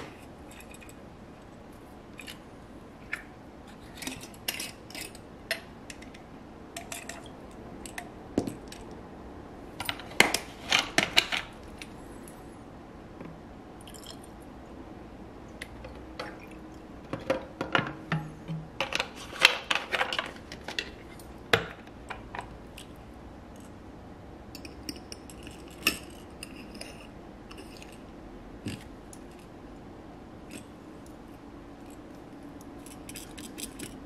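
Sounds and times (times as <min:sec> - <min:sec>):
clicks and clinks of plastic and metal: 0:03.1 - 0:06.2, 0:32.6 - 0:34.0.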